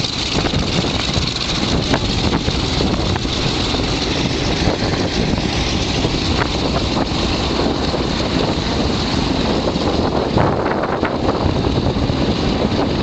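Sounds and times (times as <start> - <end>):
propeller plane engine running: 0.0 - 13.0
wind buffeting microphone: 0.0 - 13.0.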